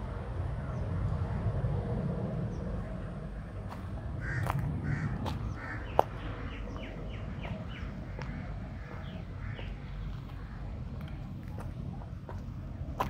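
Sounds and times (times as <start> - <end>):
steady low rumble: 0.0 - 13.0
crows cawing: 4.2 - 6.9, 7.7 - 10.8.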